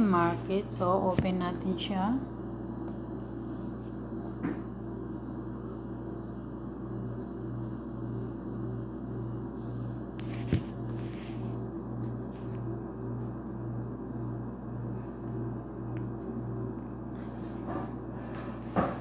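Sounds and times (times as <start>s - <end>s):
pulsing electrical hum: 0.0s - 19.0s.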